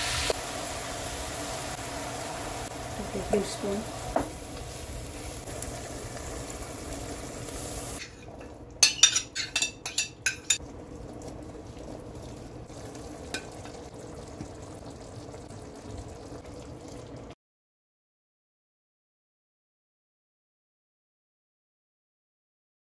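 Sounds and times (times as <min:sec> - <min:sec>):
meat sizzling in a frying pan: 0:00.0 - 0:08.2
stirring in a pan: 0:01.4 - 0:17.2.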